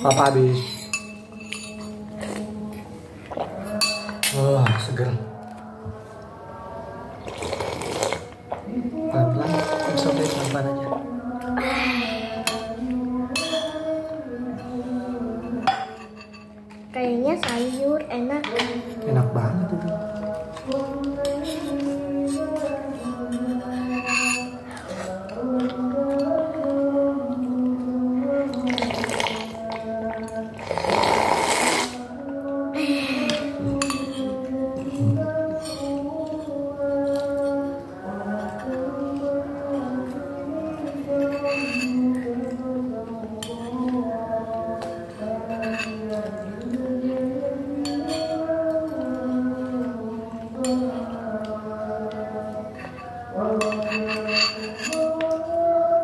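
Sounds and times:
fork clinking against bowl: 0:00.0 - 0:02.1, 0:03.7 - 0:04.9, 0:13.3 - 0:13.9, 0:15.4 - 0:16.6, 0:20.6 - 0:26.8, 0:33.3 - 0:37.8, 0:40.8 - 0:42.3, 0:44.8 - 0:46.8, 0:47.8 - 0:49.2, 0:52.8 - 0:55.4
slow background music: 0:00.0 - 0:56.0
slurping soup from a bowl: 0:07.2 - 0:08.6, 0:28.6 - 0:29.9, 0:30.6 - 0:32.1.

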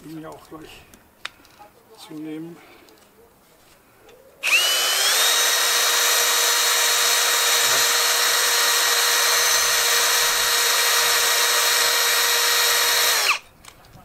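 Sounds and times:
drill motor whine: 0:04.4 - 0:13.4.

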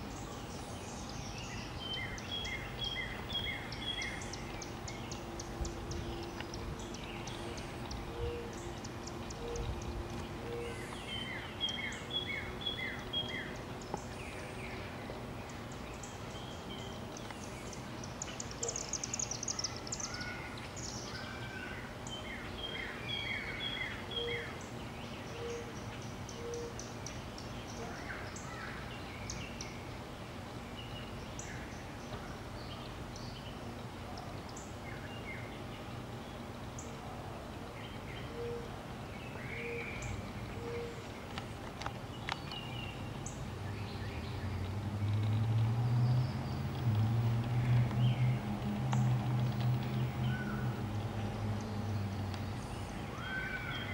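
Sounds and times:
birds chirping and singing: 0:00.0 - 0:53.9
bird trill: 0:00.1 - 0:13.6, 0:52.6 - 0:53.9.

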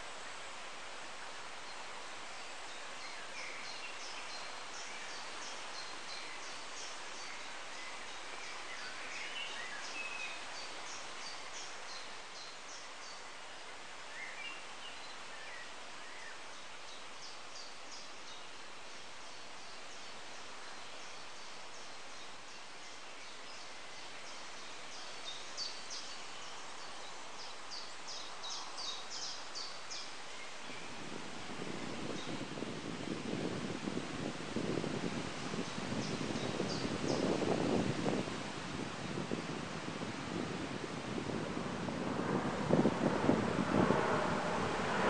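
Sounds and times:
songbirds singing: 0:00.0 - 0:41.4
steady background hiss: 0:00.0 - 0:45.0.

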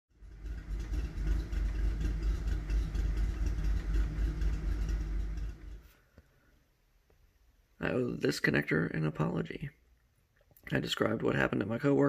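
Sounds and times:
car engine idling: 0:00.1 - 0:06.5.

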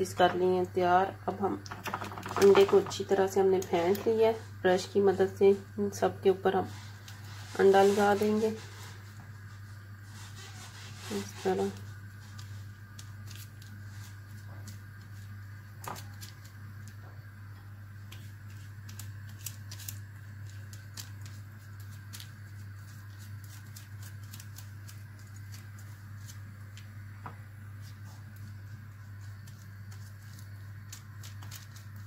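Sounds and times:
steady low hum: 0:00.0 - 0:32.0
paper crinkling: 0:10.0 - 0:17.0, 0:18.0 - 0:27.0, 0:27.8 - 0:32.0.

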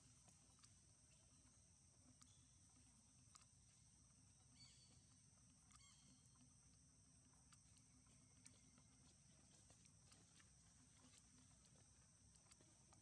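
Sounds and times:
faint chirps: 0:00.5 - 0:06.4.

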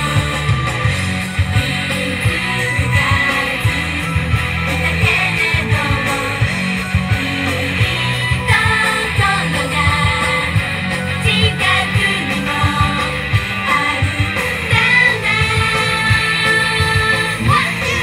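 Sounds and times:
electric guitar: 0:00.0 - 0:18.0
steady drum beat: 0:00.0 - 0:18.0
female voices singing: 0:14.7 - 0:18.0.

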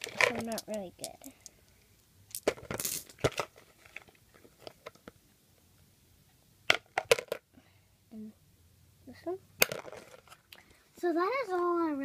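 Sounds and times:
stones clicking together: 0:00.0 - 0:03.3.

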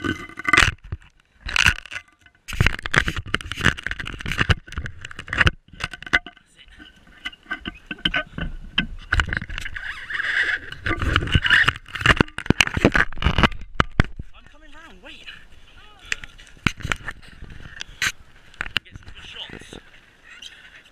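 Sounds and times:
pedal go-kart rolling on asphalt: 0:02.9 - 0:13.8.

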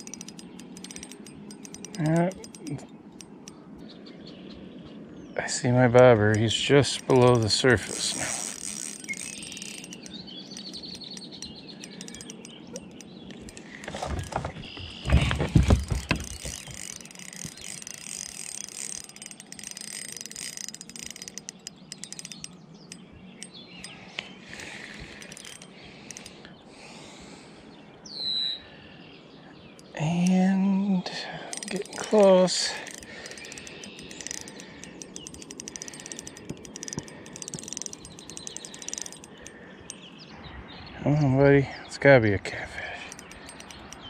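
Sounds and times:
fishing reel clicking: 0:00.0 - 0:03.6, 0:06.0 - 0:26.5, 0:31.5 - 0:40.1, 0:43.1 - 0:44.0
bird calling: 0:00.0 - 0:42.0.

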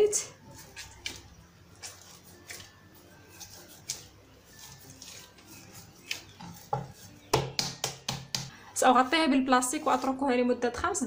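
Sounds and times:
dough kneading squishing: 0:00.0 - 0:11.0
dough smacks: 0:06.0 - 0:08.6.

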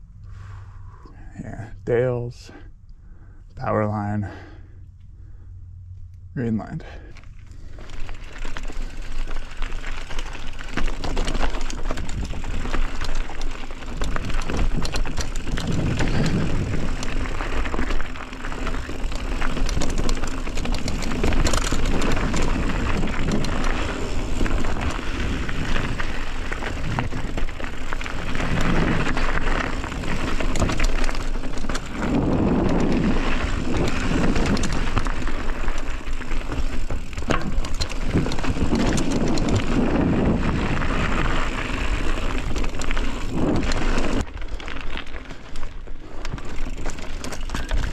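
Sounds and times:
bike tyre noise on trail: 0:00.0 - 0:47.9
bike clattering over ground: 0:07.9 - 0:47.9
wind rumble on microphone: 0:10.5 - 0:44.4.

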